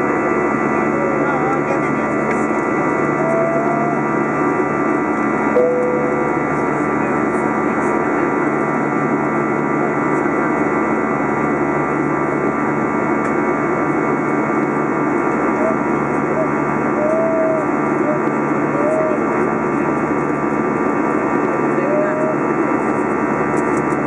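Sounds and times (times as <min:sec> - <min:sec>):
jet engine rumble: 0:00.0 - 0:17.0
steady whining tones: 0:00.4 - 0:08.4.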